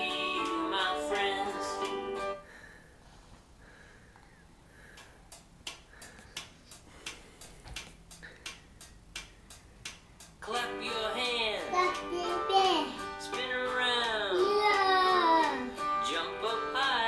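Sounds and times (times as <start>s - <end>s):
children's song with plucked strings: 0.0s - 2.4s, 8.2s - 17.0s
light irregular taps and clicks: 4.2s - 10.6s.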